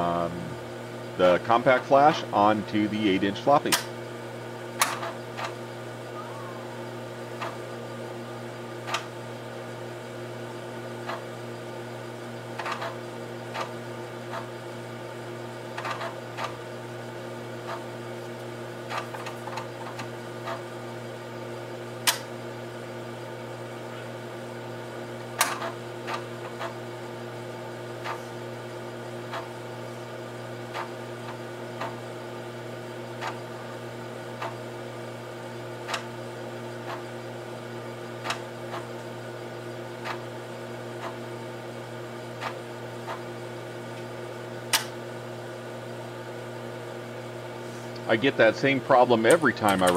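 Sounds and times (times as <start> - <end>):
floppy disk drive hum: 0.0 - 49.9
loud disk drive clacks: 4.8 - 5.6, 12.5 - 14.5, 15.7 - 16.6, 22.0 - 22.3, 25.3 - 26.8, 44.7 - 45.0, 49.2 - 49.9.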